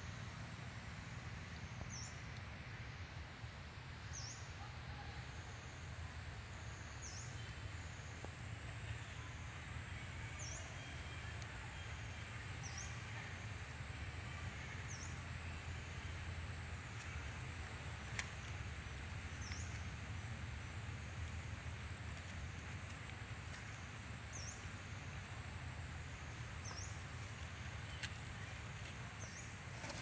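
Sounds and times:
steady low rumble: 11.4 - 29.8.

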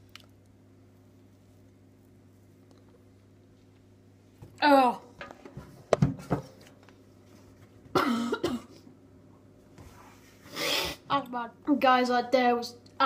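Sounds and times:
boy coughing and gagging: 7.9 - 8.8.

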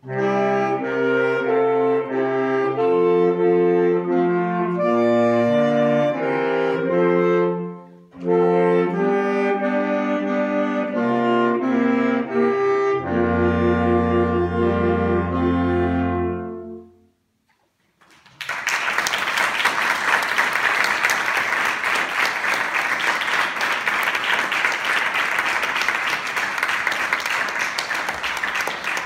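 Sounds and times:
saxophone quartet chord: 0.0 - 17.2
audience applauding: 17.9 - 29.0.

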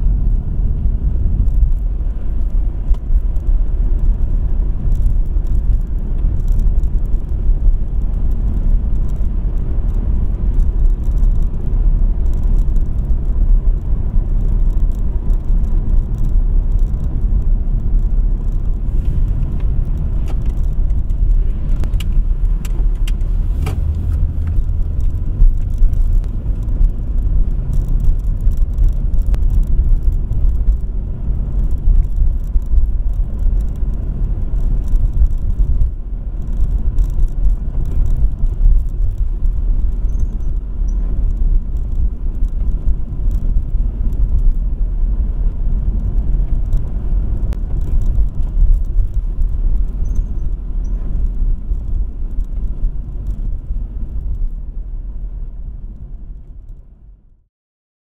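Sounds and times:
road noise: 0.0 - 57.4
car engine rumble: 0.0 - 57.5.

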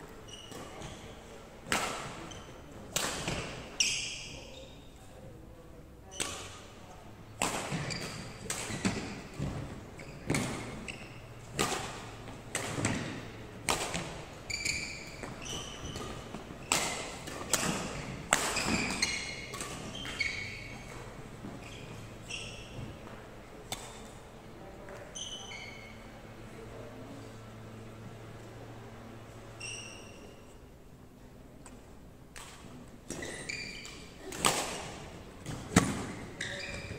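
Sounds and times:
sneakers squeaking on wooden floor: 0.1 - 1.3, 2.1 - 2.6, 3.4 - 5.0, 7.7 - 13.3, 14.1 - 23.2, 25.0 - 26.2, 29.6 - 30.6, 33.1 - 36.9
racket hitting shuttlecock: 1.6 - 3.7, 6.1 - 6.7, 7.4 - 21.0, 23.6 - 24.2, 32.3 - 36.9.

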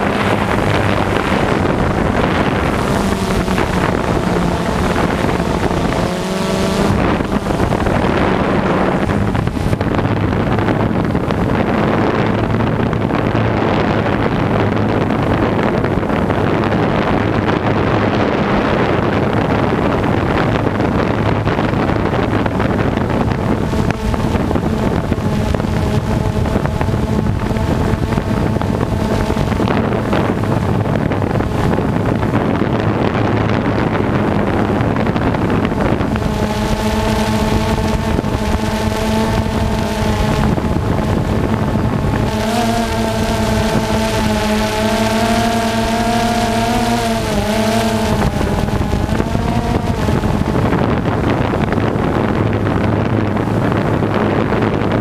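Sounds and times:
drone propellers buzzing: 0.0 - 55.0
wind on microphone: 0.0 - 55.0.

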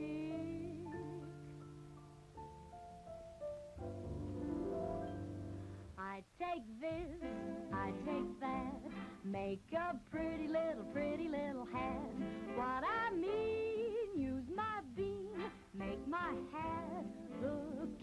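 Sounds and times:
woman singing: 0.0 - 1.6, 6.0 - 18.0
held instrumental chords: 0.0 - 6.0.

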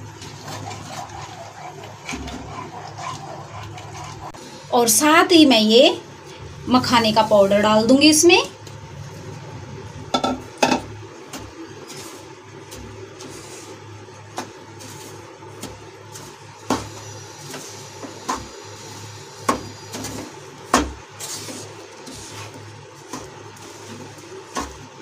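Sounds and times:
spatula stirring and scraping: 0.0 - 4.4, 11.2 - 25.0.

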